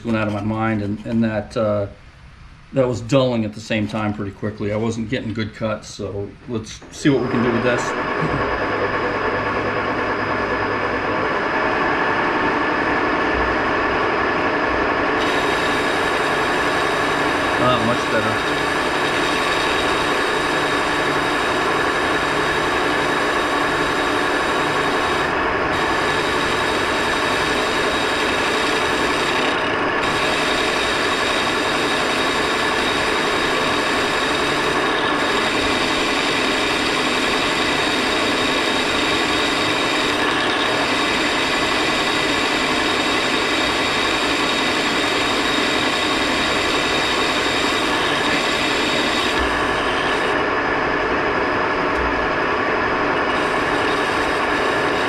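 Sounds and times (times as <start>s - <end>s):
lathe gear whine: 6.5s - 55.0s
boring bar cutting metal hiss: 15.2s - 50.4s, 53.3s - 55.0s.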